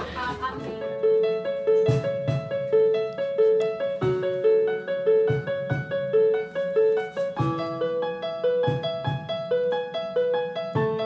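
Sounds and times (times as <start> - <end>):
electronic keyboard playing: 0.0 - 11.0
low drum thump: 1.9 - 2.7, 7.4 - 7.9, 8.6 - 9.4.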